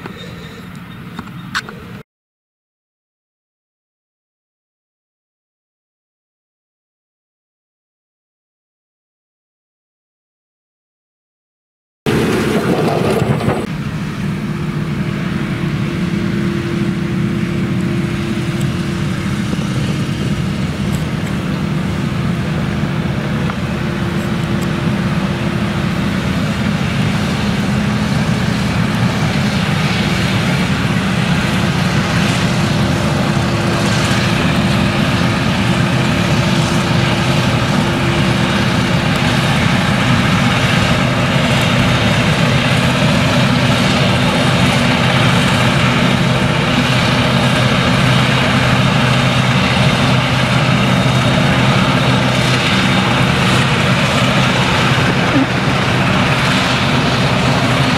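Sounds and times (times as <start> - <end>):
harvester engine droning: 0.0 - 2.0, 12.1 - 57.9
tractor engine: 0.0 - 2.0, 12.1 - 57.9
chopper cutting crop: 12.1 - 57.9.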